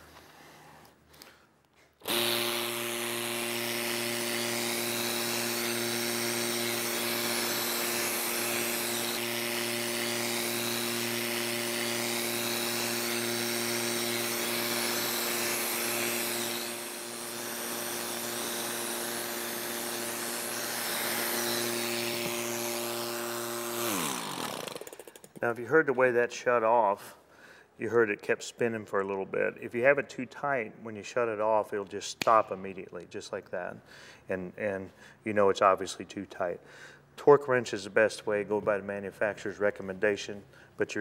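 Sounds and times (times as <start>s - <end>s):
electric motor hum: 2.0s - 24.9s
air compressor running: 2.0s - 25.3s.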